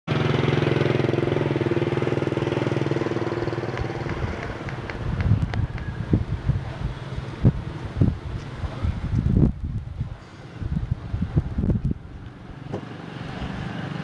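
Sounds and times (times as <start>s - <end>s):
motorbike engine running: 0.1s - 7.7s
wind thumps on microphone: 3.4s - 12.9s.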